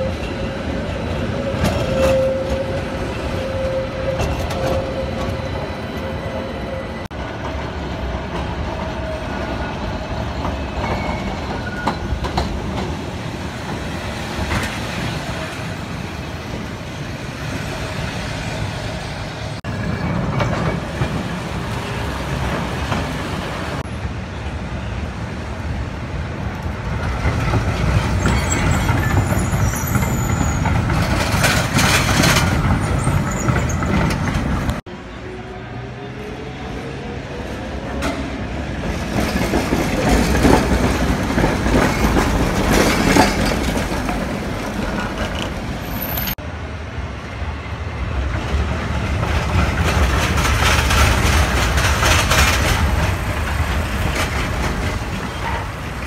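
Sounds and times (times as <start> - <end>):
tram rattling: 0.0 - 56.0
tram wheels rumbling on rails: 0.0 - 56.0
wheels squealing on track: 28.0 - 34.4.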